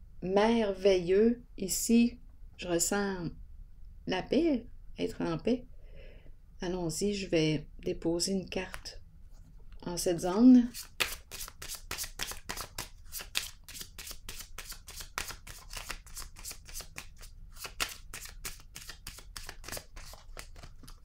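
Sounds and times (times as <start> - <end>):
cards being shuffled: 10.6 - 21.0.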